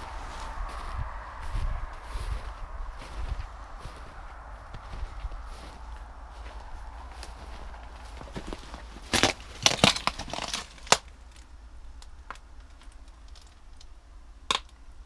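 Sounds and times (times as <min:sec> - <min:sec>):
footsteps crunching over debris: 0:00.0 - 0:11.5.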